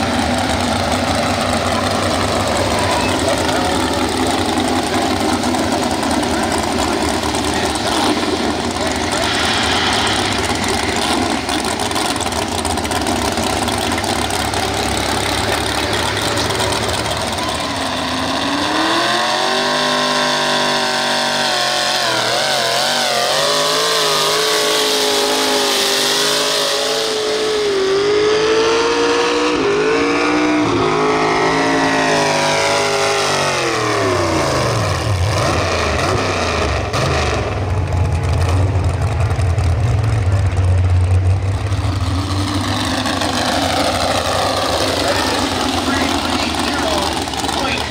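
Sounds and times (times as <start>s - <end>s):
engine idle rumble: 0.0s - 19.0s, 37.4s - 47.9s
pickup engine revving: 0.0s - 47.9s.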